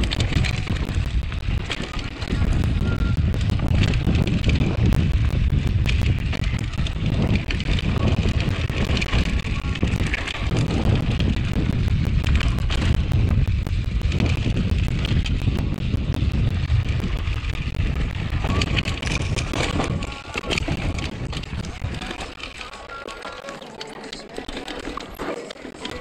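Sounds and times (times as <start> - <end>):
wind buffeting microphone: 0.0 - 23.0
bike rattling over rocks: 0.0 - 26.0.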